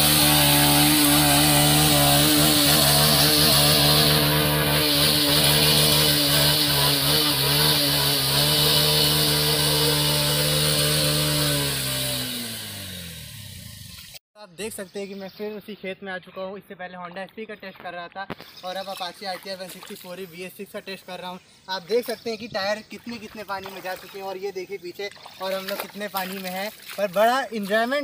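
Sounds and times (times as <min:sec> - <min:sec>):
wheel churning through mud: 0:00.0 - 0:12.9, 0:25.1 - 0:28.0
motorcycle engine revving: 0:00.0 - 0:14.2.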